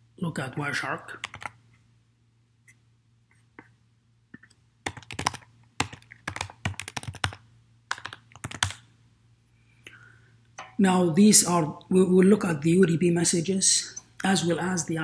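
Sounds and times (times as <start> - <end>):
computer keyboard typing: 1.2 - 1.6, 4.4 - 8.8.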